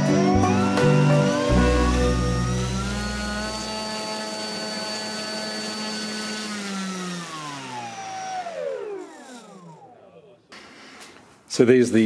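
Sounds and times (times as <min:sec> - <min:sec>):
electric motor and propeller: 0:00.0 - 0:10.0.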